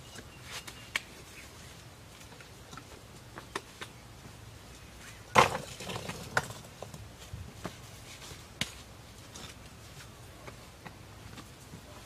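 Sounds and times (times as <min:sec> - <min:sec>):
stones knocking together: 0:05.3 - 0:07.1.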